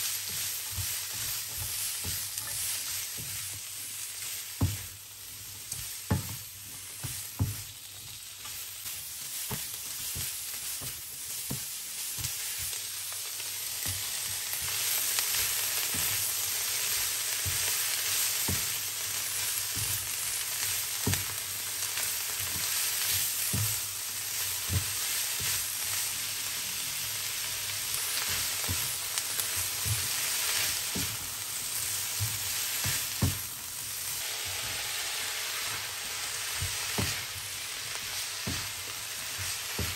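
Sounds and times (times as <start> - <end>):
spatula scraping a pan: 0.0 - 7.7
vegetables sizzling in a wok: 0.0 - 39.9.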